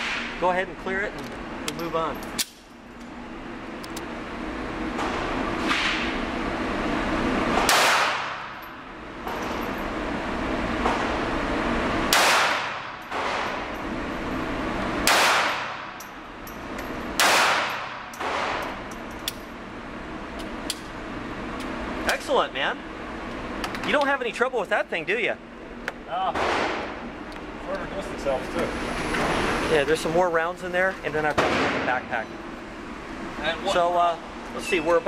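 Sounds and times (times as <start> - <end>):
pistol shots echoing indoors: 7.7 - 8.5, 12.1 - 13.5, 15.0 - 15.9, 17.2 - 18.6.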